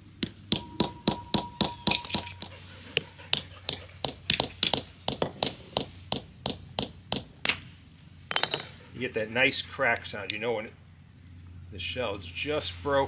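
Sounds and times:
hammer tapping nut: 0.2s - 7.6s.

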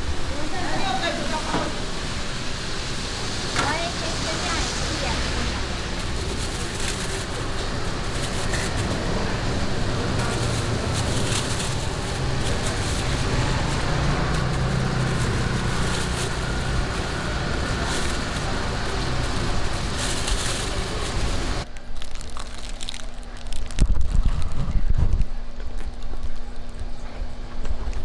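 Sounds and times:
passing traffic: 0.0s - 21.7s
distant voices: 0.0s - 21.8s
plastic bags rustling: 3.6s - 24.9s.

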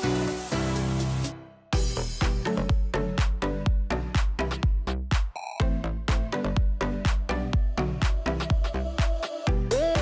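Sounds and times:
background music with quick beat: 0.0s - 10.0s.

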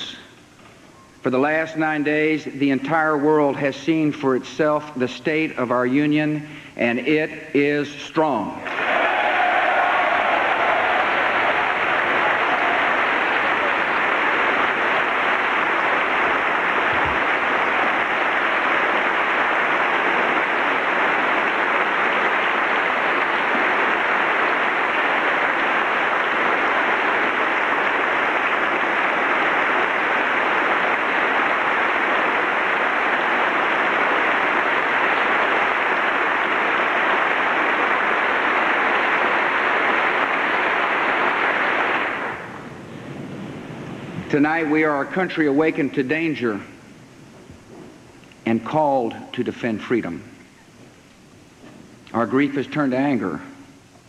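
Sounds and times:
large crowd applauding: 8.6s - 43.0s.

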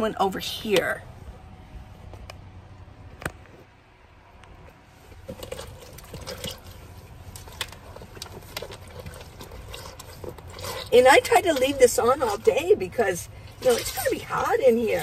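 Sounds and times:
water sloshing and dripping: 5.1s - 15.0s.

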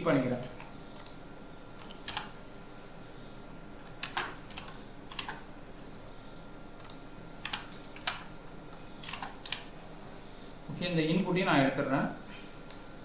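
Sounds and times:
faint hum: 0.0s - 13.0s
keyboard keystrokes clicking: 4.0s - 5.4s, 9.0s - 9.6s.

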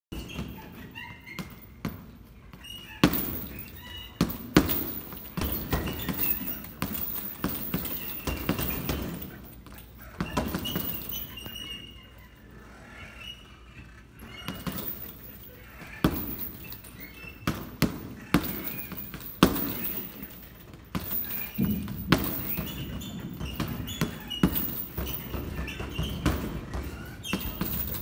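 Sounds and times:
short high squeaks: 0.1s - 28.0s
punches thudding on heavy bag: 3.0s - 9.4s, 16.0s - 16.6s, 17.4s - 28.0s.

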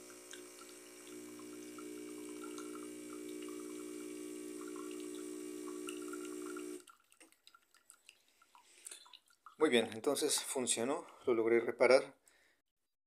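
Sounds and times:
espresso machine pump humming: 0.0s - 6.9s
liquid dripping into mug: 0.0s - 11.2s.

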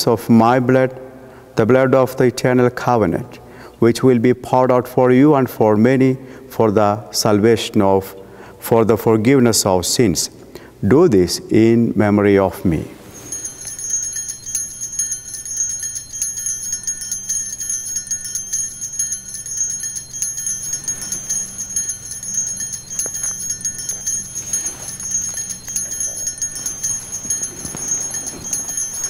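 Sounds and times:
small bells jingling: 13.0s - 29.0s.

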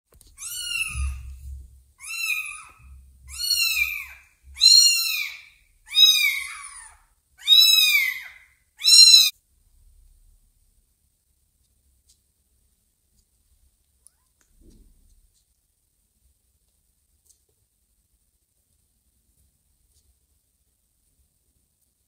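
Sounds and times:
kitten meowing: 0.4s - 1.4s, 2.0s - 9.3s.

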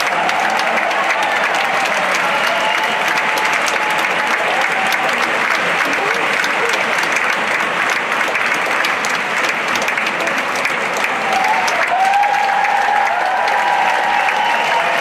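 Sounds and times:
long shout from audience: 0.0s - 7.0s, 11.0s - 15.0s
audience applauding: 0.0s - 15.0s.

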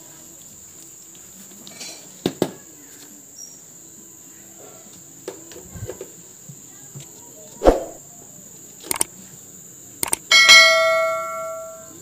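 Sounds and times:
sharp clicks: 8.9s - 9.1s, 10.0s - 10.3s.

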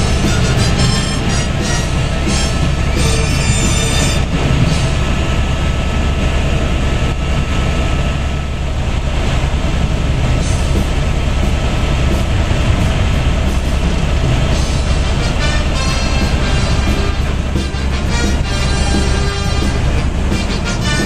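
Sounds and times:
helicopter rotor and engine noise: 0.0s - 21.0s.

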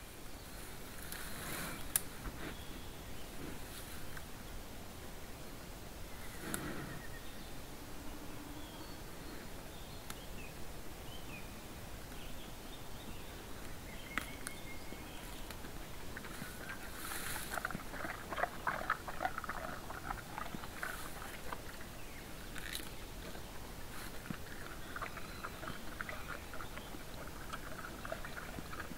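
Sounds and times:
bear rustling in dry grass: 0.4s - 4.2s, 15.6s - 18.3s, 20.0s - 28.9s
bear crunching: 15.5s - 28.9s.

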